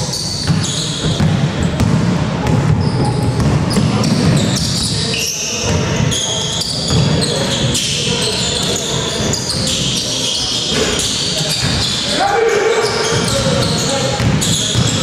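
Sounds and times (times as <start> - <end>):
sneakers squeaking on floor: 0.0 - 15.0
basketball bouncing: 0.4 - 4.6, 14.2 - 15.0.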